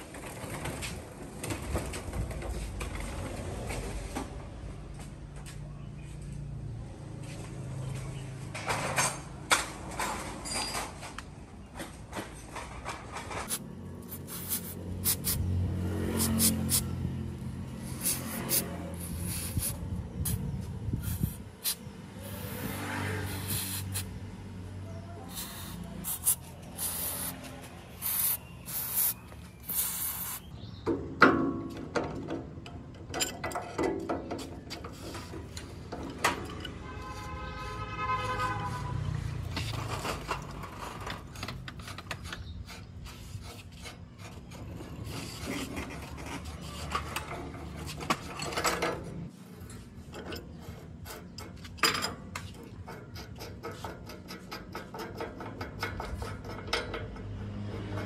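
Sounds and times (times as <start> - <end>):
hand tools scraping metal: 12.6 - 24.2, 25.2 - 30.6, 33.2 - 58.0.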